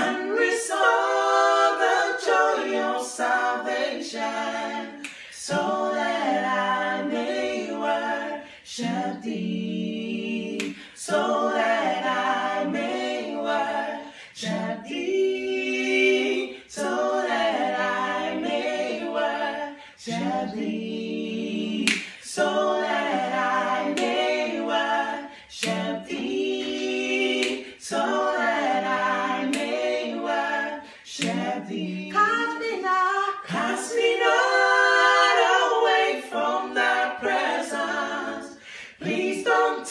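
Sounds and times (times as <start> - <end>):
breaths: 5.0 - 5.4, 14.0 - 14.4, 30.8 - 31.1, 38.6 - 39.0.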